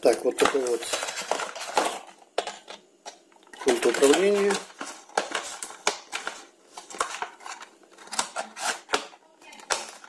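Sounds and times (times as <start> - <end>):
cardboard rustling and scraping: 3.6 - 9.1.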